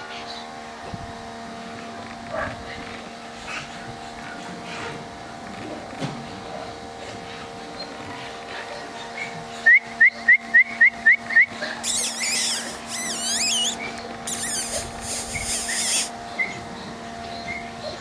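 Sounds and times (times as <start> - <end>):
high rising chirps: 11.8 - 16.1
wavering high squeaks and warbles: 11.8 - 16.1.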